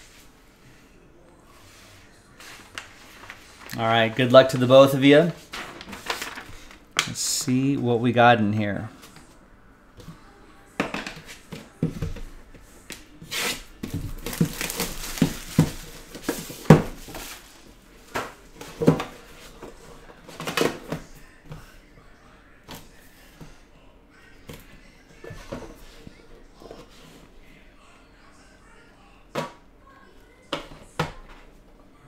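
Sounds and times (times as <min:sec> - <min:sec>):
packaging rustling: 0:02.4 - 0:07.0, 0:13.3 - 0:17.6.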